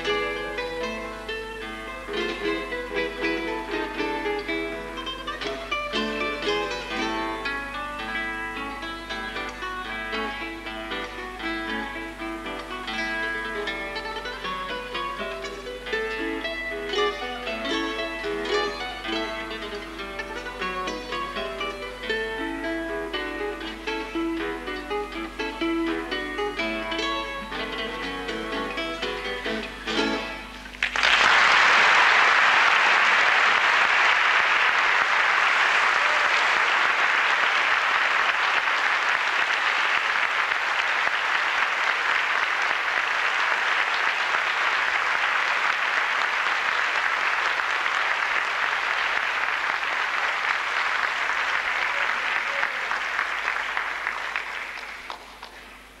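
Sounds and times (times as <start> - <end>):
audience applauding: 30.7 - 56.0.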